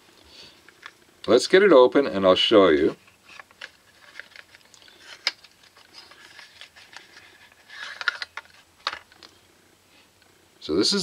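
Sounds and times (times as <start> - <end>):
cardboard rustling and scraping: 2.8 - 8.7.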